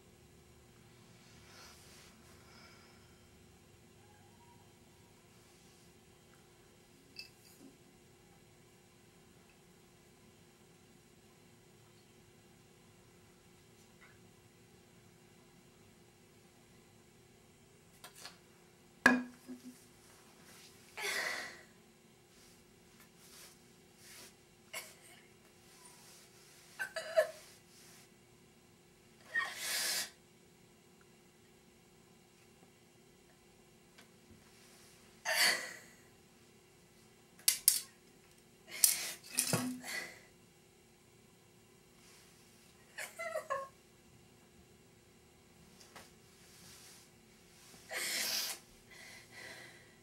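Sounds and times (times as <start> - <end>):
woman crying: 43.0 - 43.8
woman sobbing: 43.0 - 43.8.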